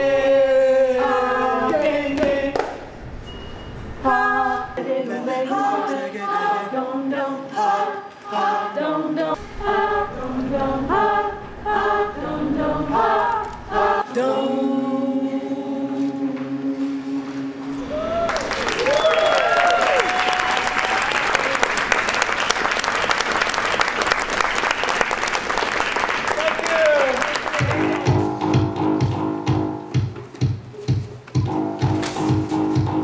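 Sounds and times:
group singing a cappella: 0.0 - 3.0, 4.0 - 17.9.

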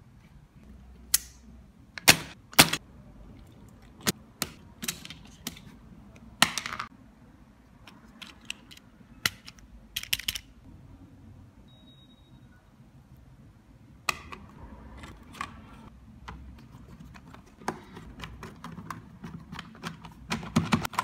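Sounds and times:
plastic keyboard clicks: 8.2 - 10.5, 17.1 - 21.0.

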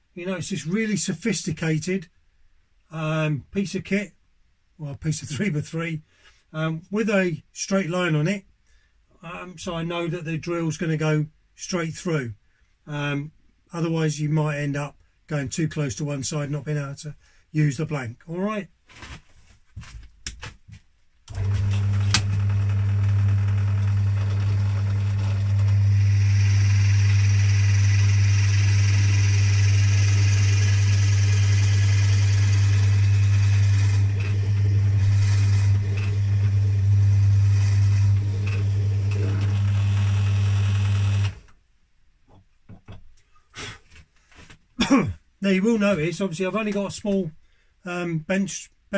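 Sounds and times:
drill bit cutting wood: 21.3 - 41.4
bench drill motor humming: 21.3 - 41.5.

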